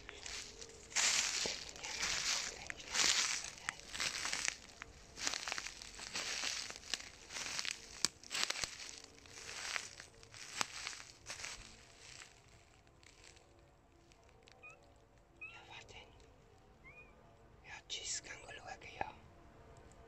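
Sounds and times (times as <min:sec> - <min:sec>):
twigs snapping: 0:00.0 - 0:13.4
footsteps crunching dry leaves: 0:00.0 - 0:13.5.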